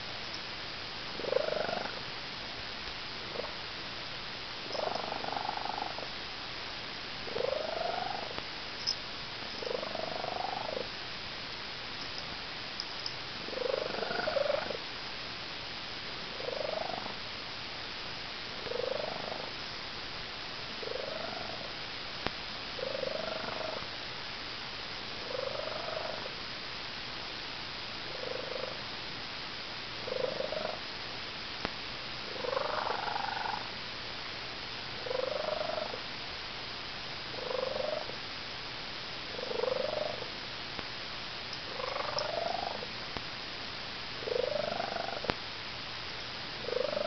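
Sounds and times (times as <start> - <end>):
cat bird-like chirping purr: 1.2 - 2.0, 3.3 - 3.6, 4.6 - 6.1, 7.3 - 10.9, 13.4 - 14.8, 16.4 - 17.2, 18.6 - 19.6, 20.8 - 21.7, 22.8 - 23.9, 25.2 - 26.3, 28.1 - 28.8, 30.1 - 30.8, 32.3 - 33.7, 35.0 - 36.0, 37.3 - 38.2, 39.3 - 40.3, 41.7 - 42.9, 44.2 - 45.3, 46.6 - 47.0.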